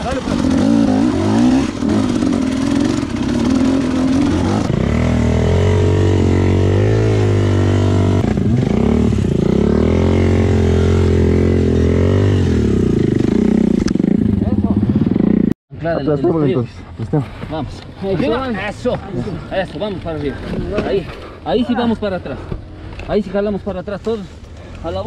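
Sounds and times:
dirt bike engine revving: 0.0 - 15.6.

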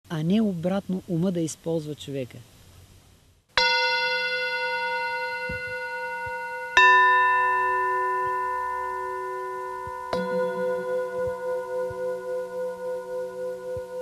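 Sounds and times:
metal singing bowl ringing: 3.6 - 14.0.

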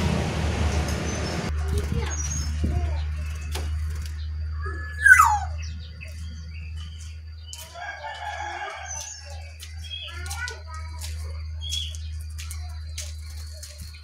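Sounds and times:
rough layered bird call: 1.0 - 14.0
downward-sliding bird call: 4.6 - 5.6.

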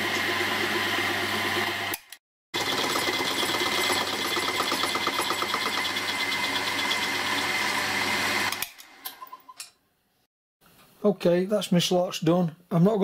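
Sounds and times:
milling machine cutting metal: 0.0 - 9.0.

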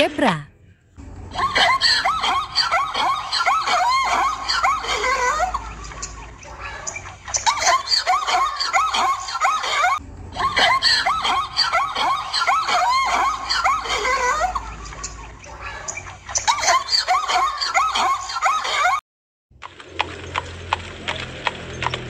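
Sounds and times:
zebra calling: 1.3 - 18.1.

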